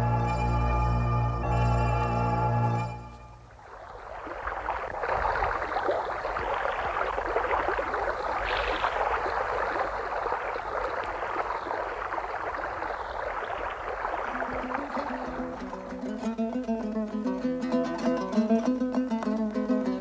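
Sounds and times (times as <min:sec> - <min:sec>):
lake water lapping and splashing: 0:03.4 - 0:18.0.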